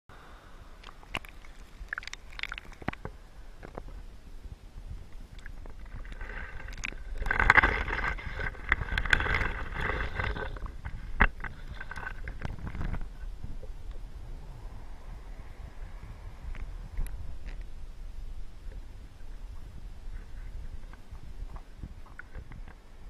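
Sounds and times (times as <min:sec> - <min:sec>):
water sloshing and crackling: 0:00.8 - 0:14.1, 0:18.6 - 0:23.0.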